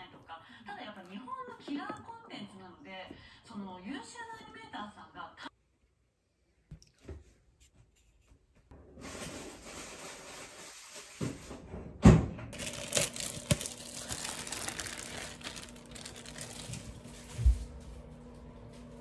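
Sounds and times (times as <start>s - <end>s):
plastic wrapping crinkling: 12.5s - 17.6s.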